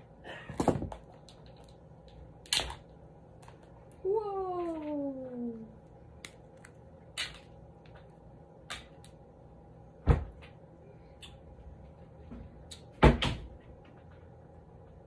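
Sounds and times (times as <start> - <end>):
crab shells cracking: 1.0 - 3.6, 6.1 - 8.0.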